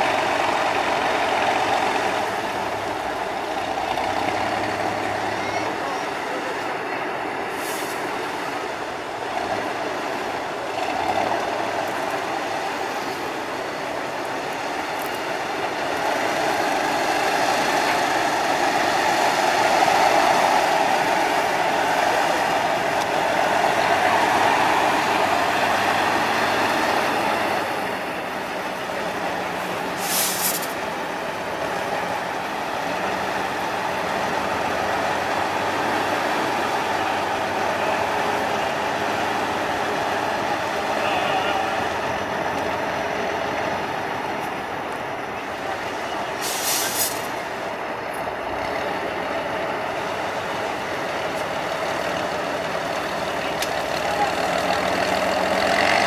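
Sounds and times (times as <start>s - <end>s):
truck diesel engine under load: 0.0s - 56.0s
short sharp hiss: 7.5s - 8.1s, 30.0s - 30.8s, 46.4s - 47.3s.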